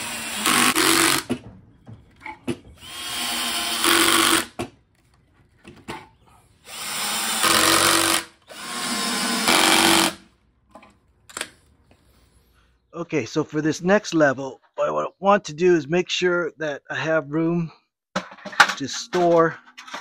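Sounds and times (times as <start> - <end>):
power drill drilling into wood: 0.0 - 1.3, 2.8 - 4.6, 6.6 - 10.2.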